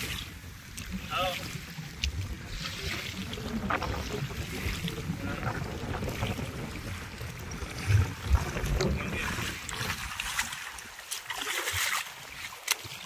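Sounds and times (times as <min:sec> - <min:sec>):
water splashing from wading: 0:00.0 - 0:13.0.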